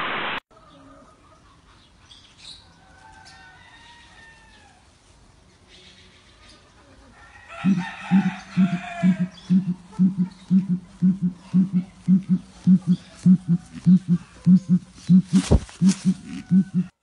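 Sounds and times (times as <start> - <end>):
bird calls with gliding notes: 7.7 - 17.0.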